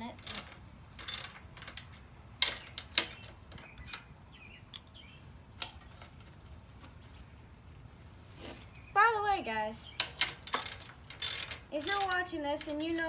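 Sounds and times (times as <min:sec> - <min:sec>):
ratchet wrench clicking: 0:00.2 - 0:03.2, 0:10.0 - 0:12.7.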